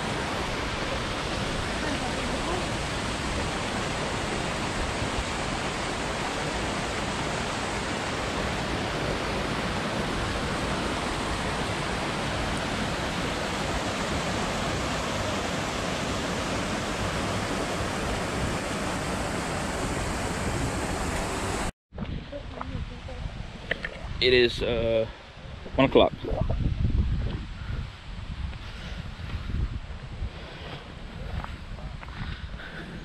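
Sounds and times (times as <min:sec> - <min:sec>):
rushing mountain stream: 0:00.0 - 0:21.7.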